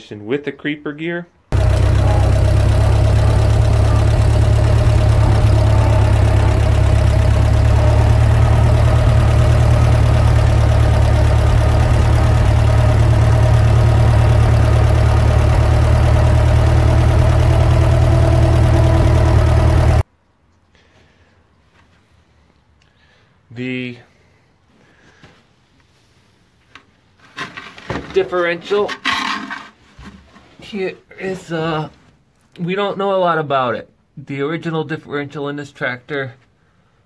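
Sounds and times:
tractor engine running: 1.5 - 20.0.

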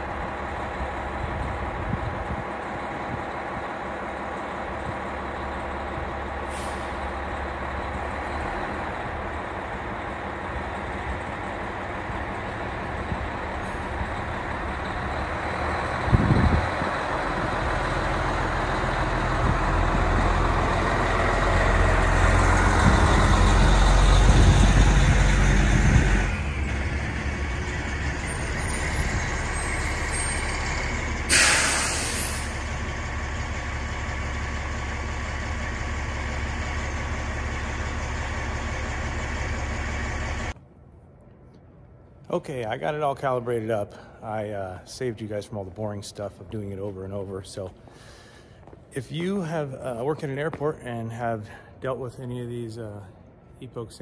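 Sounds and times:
truck diesel engine running: 0.0 - 40.6
air brakes hissing: 6.4 - 7.2, 26.5 - 33.2.

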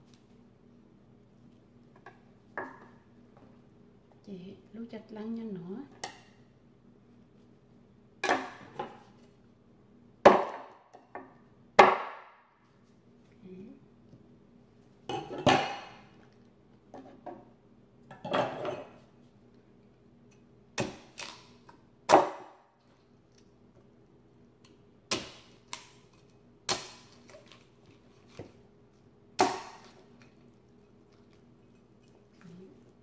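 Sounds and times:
faint steady hum: 0.0 - 33.0
dishes and utensils clattering: 15.1 - 16.0, 18.1 - 19.0.

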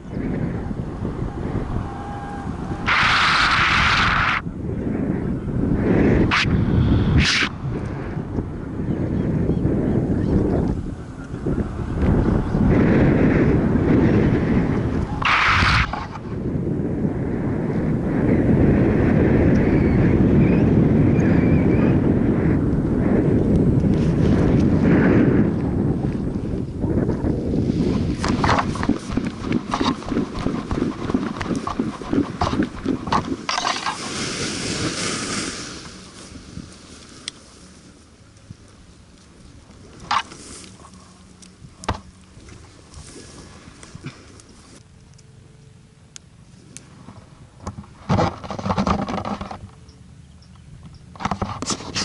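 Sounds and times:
wind rumble on microphone: 0.0 - 52.0
gear rustling and scraping: 47.1 - 49.8.

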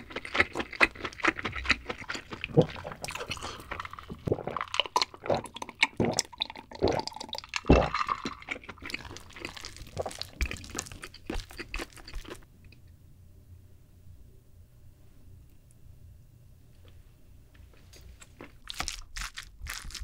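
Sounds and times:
person gulping water: 1.8 - 11.1.

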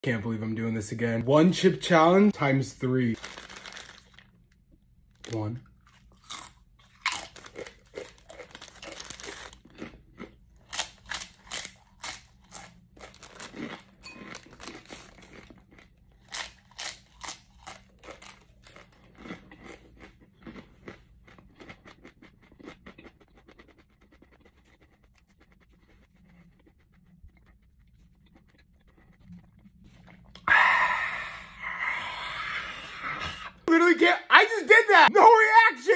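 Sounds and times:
chips crunching in mouth: 3.2 - 4.4, 5.1 - 25.9
person crying out: 30.4 - 33.6.

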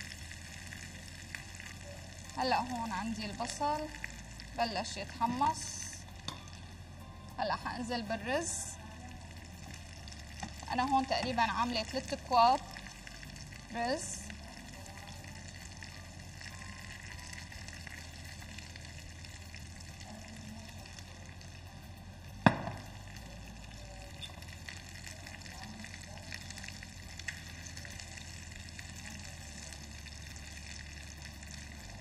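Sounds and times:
rice and onions sizzling in oil: 0.0 - 32.0
sharp knock: 22.5 - 22.8.

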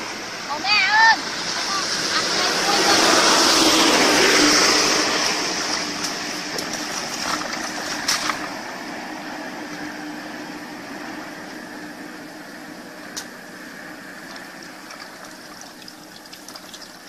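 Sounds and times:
muddy water splashing: 1.8 - 8.9, 14.2 - 17.0.

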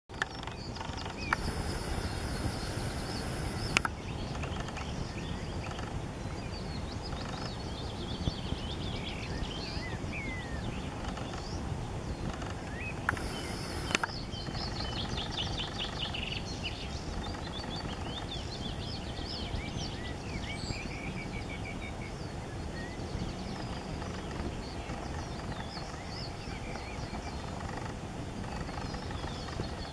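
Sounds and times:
small birds singing: 0.1 - 29.9
steady low rumble: 0.6 - 7.0
sharp click: 1.3 - 4.8, 13.1 - 14.2.

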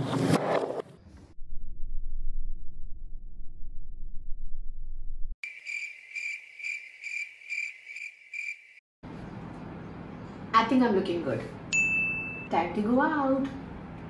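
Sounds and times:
low rumbling: 1.1 - 5.4
crickets chirping: 5.4 - 8.8.

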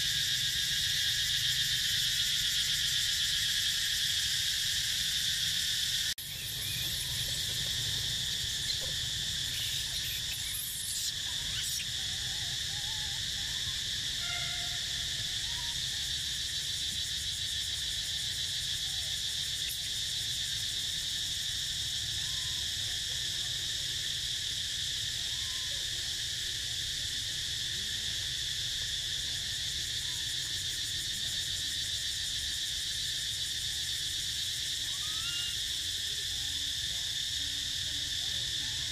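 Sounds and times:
faint short insect chirps: 0.0 - 18.0, 34.4 - 36.3
insects droning: 0.0 - 38.9.

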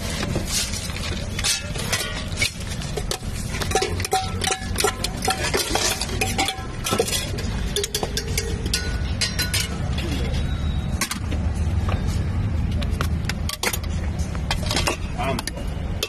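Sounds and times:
metal spoon scraping steel tin: 0.5 - 9.9.

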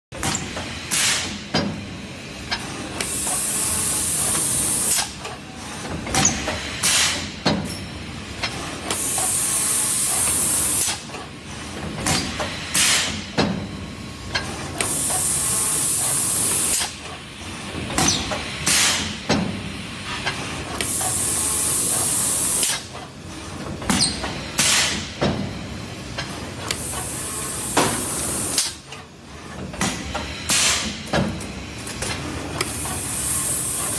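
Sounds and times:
air hissing from machine: 0.3 - 1.4, 3.0 - 5.2, 8.9 - 11.1, 12.2 - 13.3, 18.1 - 20.2.

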